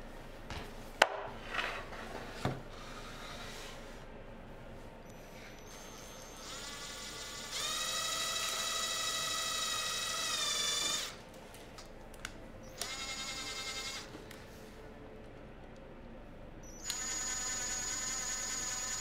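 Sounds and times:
cordless drill whining: 0:05.7 - 0:11.2, 0:12.7 - 0:14.1, 0:16.8 - 0:19.0.

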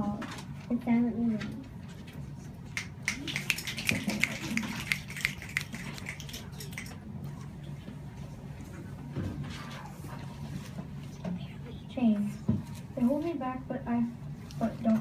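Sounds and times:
low room hum: 0:00.0 - 0:15.0
scattered clapping: 0:02.8 - 0:07.0.

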